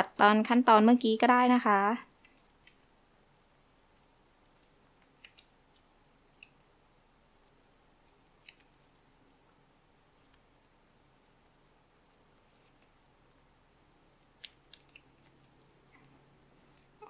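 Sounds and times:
ribbon crinkling and snapping: 14.2 - 16.1.

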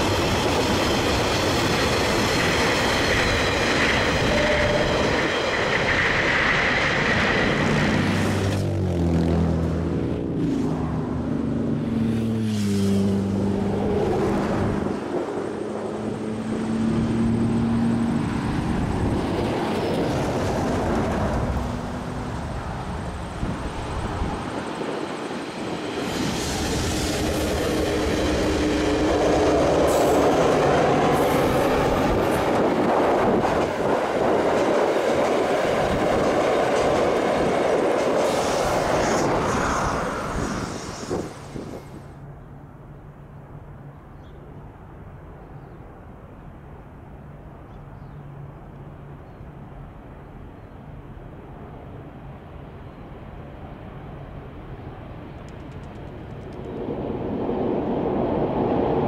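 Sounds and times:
wheels rumbling on rail: 0.0 - 42.6, 46.7 - 59.0
sharp clicks: 55.4 - 56.8.

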